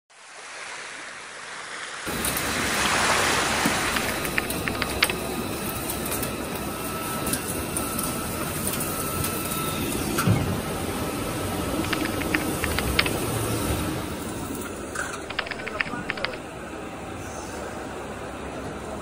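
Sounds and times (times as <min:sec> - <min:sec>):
sharp clicks: 0:03.8 - 0:05.3, 0:11.8 - 0:13.3, 0:15.3 - 0:16.4.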